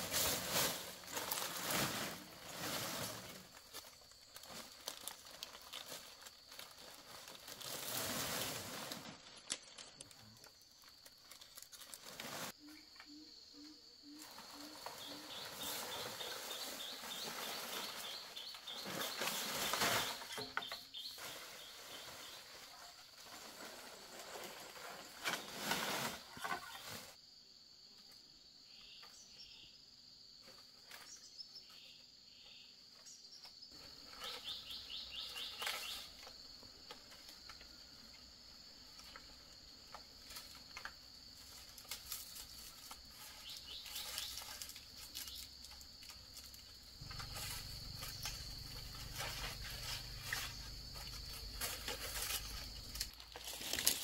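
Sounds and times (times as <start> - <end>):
insects droning: 0.0 - 54.0
bird-like chirps: 12.6 - 22.6, 31.0 - 36.2, 43.2 - 45.5.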